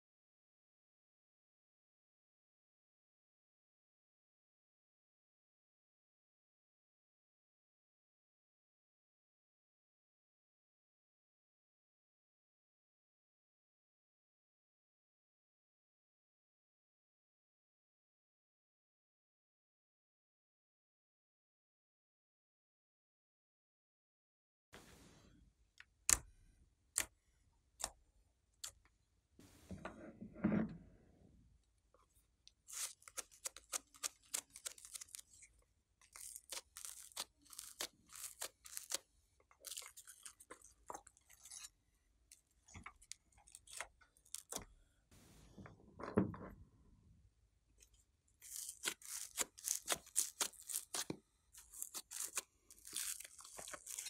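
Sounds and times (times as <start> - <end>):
slime squelches: 32.5 - 45.5, 48.4 - 54.0
slime crackling and popping: 32.7 - 35.4, 36.1 - 39.0, 48.5 - 54.0.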